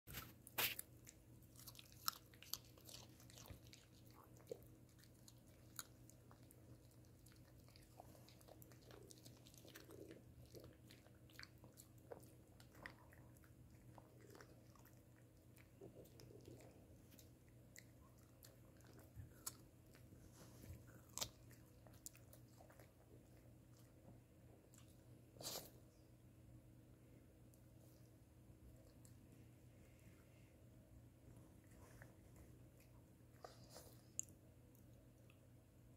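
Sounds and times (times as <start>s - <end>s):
dog crunching raw carrot: 0.1s - 23.9s.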